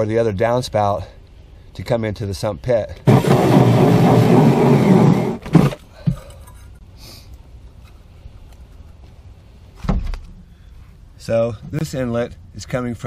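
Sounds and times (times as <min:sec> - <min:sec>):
drill hole saw cutting plastic: 0:03.1 - 0:05.8
short thump: 0:09.8 - 0:10.3.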